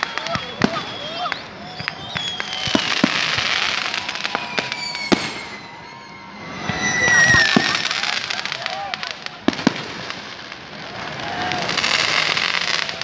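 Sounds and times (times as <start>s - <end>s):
whistles sliding down in pitch: 0.0s - 9.0s
firework bangs: 0.0s - 13.0s.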